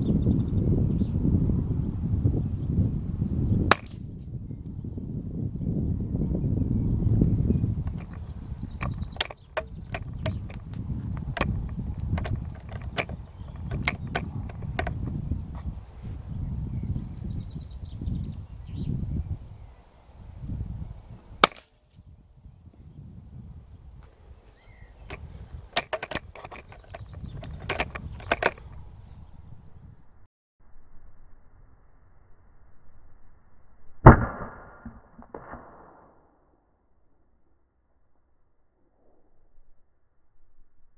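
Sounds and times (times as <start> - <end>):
wind rumble on microphone: 0.0 - 31.0
handling clicks and ticks: 7.8 - 15.1, 25.1 - 28.8.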